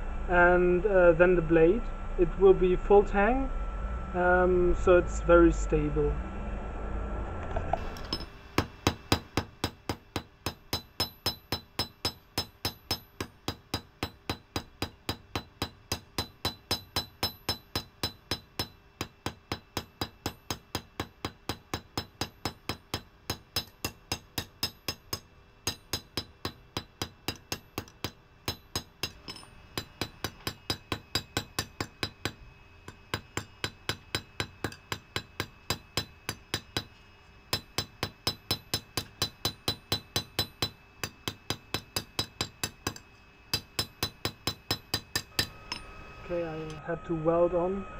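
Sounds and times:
hammer striking metal on anvil: 0:08.0 - 0:36.9, 0:37.5 - 0:46.0.

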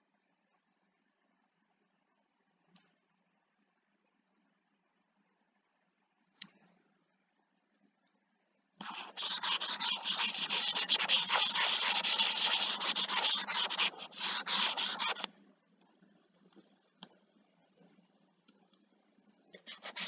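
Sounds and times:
stylus scrubbing on pen tablet: 0:08.8 - 0:15.3, 0:19.6 - 0:20.0.

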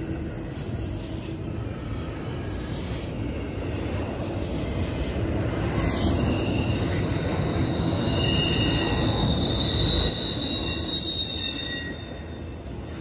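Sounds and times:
high-pitched wheel squeal: 0:00.0 - 0:01.5, 0:05.8 - 0:13.0
train wheels rumbling on rails: 0:00.0 - 0:13.0.

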